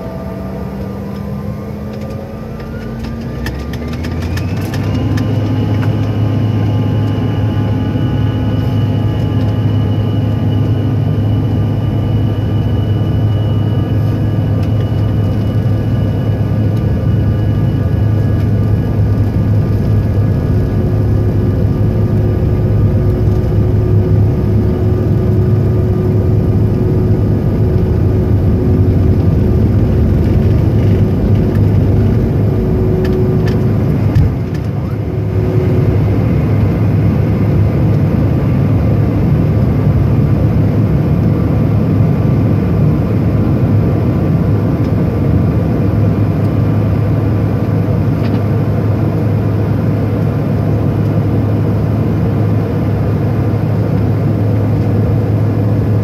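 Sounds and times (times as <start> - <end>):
steady hum: 0.0 - 47.9
jet engine drone in cabin: 0.0 - 56.0
runway rumble: 18.2 - 38.6.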